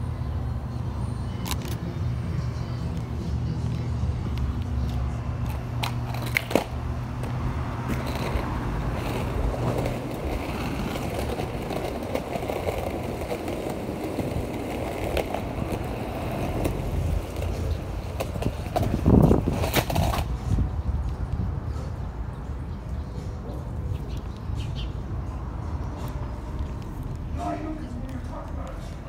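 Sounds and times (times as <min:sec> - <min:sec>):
skateboard wheels rolling on asphalt: 0:00.0 - 0:29.0.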